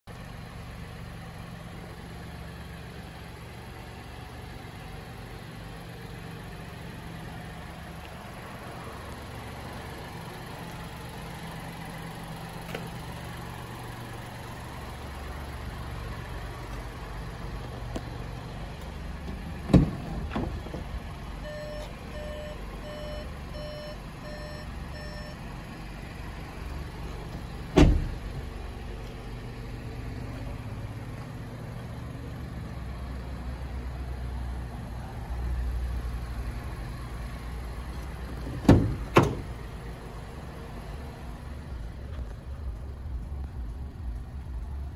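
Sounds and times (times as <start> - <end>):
car doors shutting: 18.8 - 23.9, 27.1 - 28.4, 37.9 - 39.6
car warning chime beeping: 21.4 - 25.5.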